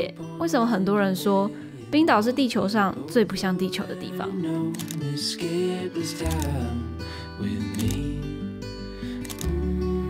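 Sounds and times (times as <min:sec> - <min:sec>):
plucked acoustic guitar music: 0:02.9 - 0:10.0.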